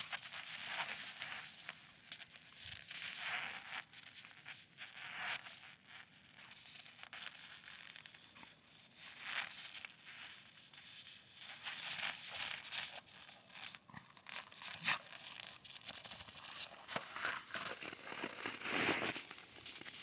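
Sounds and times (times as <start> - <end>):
snow crunching under dogs: 11.6 - 20.0.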